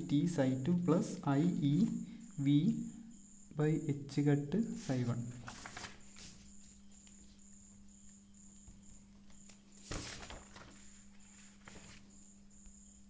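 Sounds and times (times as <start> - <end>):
cricket chirping: 0.0 - 13.0
paper rustling: 4.8 - 7.4, 9.4 - 12.1.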